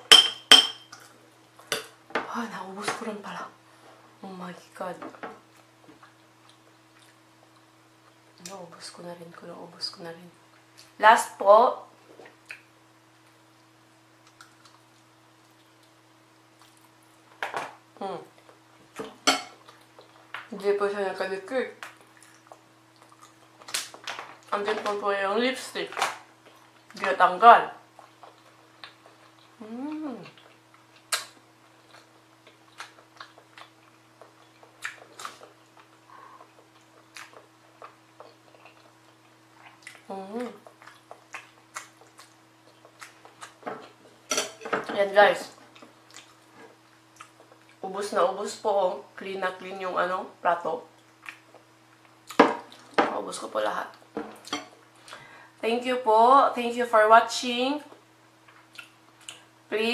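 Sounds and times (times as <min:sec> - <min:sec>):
low steady hum: 0:00.0 - 0:59.9
soft chewing: 0:05.4 - 0:08.6, 0:12.0 - 0:17.4, 0:18.2 - 0:20.5, 0:21.8 - 0:24.6, 0:26.3 - 0:27.0, 0:27.8 - 0:44.6, 0:45.5 - 0:47.8, 0:50.9 - 0:53.0, 0:57.9 - 0:59.6
mouth chewing wetly: 0:27.9 - 0:43.6, 0:58.5 - 0:59.5.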